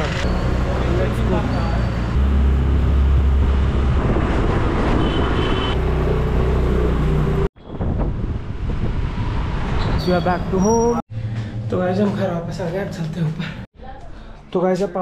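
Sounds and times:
vehicle engine humming: 0.0s - 7.5s
road noise: 0.0s - 13.7s.

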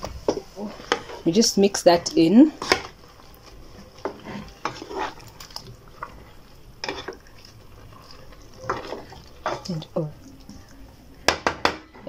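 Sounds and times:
wooden spoon stirring in pot: 0.0s - 12.0s
spoon knocking and scraping pot: 2.0s - 3.0s, 4.0s - 5.3s, 6.8s - 7.3s, 8.5s - 9.9s, 11.2s - 12.0s.

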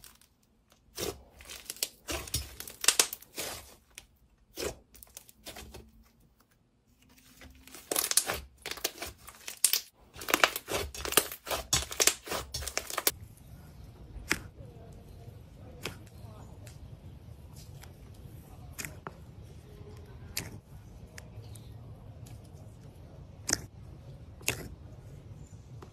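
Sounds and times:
slime crackling and popping: 0.0s - 5.8s, 7.3s - 13.1s, 24.4s - 24.7s.

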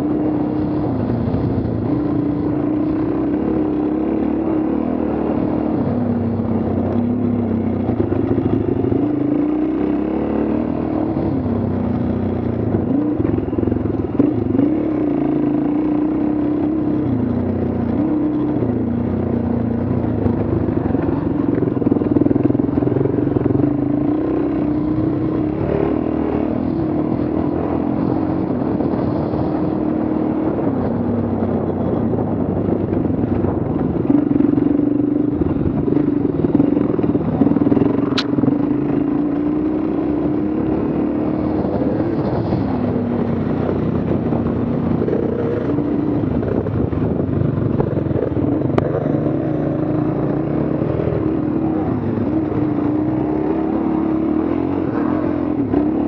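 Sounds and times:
motorcycle engine running: 0.0s - 56.0s
sharp click: 38.1s - 38.4s.

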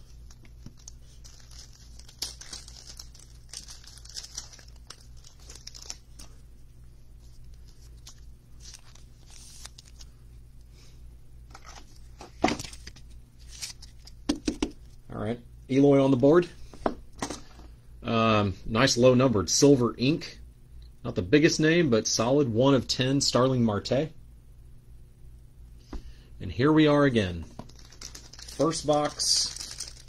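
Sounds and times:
plastic sleeve crinkling: 0.0s - 6.4s, 7.2s - 10.1s, 11.5s - 15.0s, 27.4s - 30.0s.

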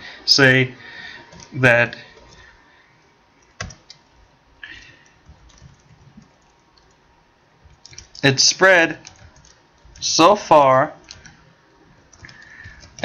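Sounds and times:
faint keyboard keystrokes: 3.4s - 4.1s, 4.7s - 7.0s, 7.6s - 8.2s, 9.0s - 10.1s, 11.0s - 13.0s.

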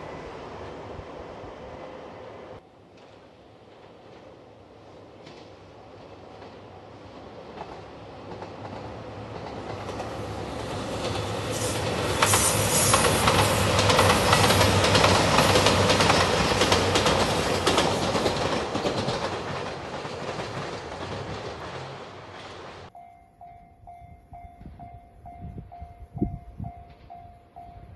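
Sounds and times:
diesel train engine drone: 0.0s - 27.9s
wheels clattering over rail joints: 7.4s - 22.9s.

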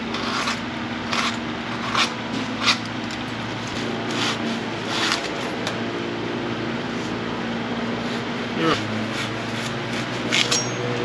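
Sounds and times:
blade scraping foam: 0.0s - 5.8s, 8.0s - 10.7s
steady low hum: 0.0s - 11.0s.

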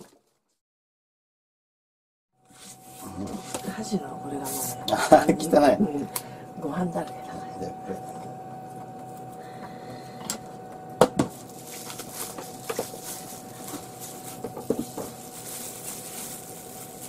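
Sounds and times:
faint steady hum: 2.4s - 17.0s
plastic film crinkling: 11.3s - 17.0s.

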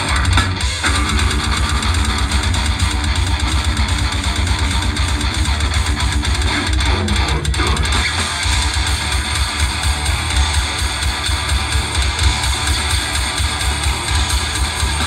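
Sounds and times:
metal band playing live: 0.0s - 15.0s.

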